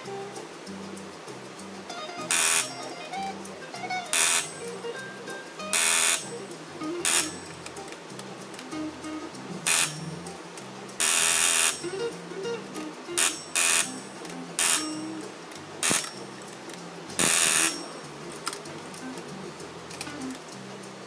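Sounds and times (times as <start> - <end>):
background music: 0.0 - 21.0
electric buzzer bursts: 2.2 - 2.7, 4.1 - 4.5, 5.7 - 6.3, 7.0 - 7.4, 9.7 - 10.0, 11.0 - 11.8, 13.2 - 14.0, 14.6 - 14.9, 17.2 - 17.8.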